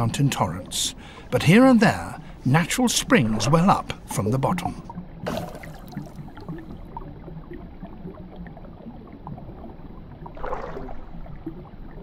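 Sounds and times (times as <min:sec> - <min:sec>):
water gurgling around boat: 0:00.0 - 0:12.0
rush of water: 0:02.9 - 0:06.4, 0:10.4 - 0:11.3.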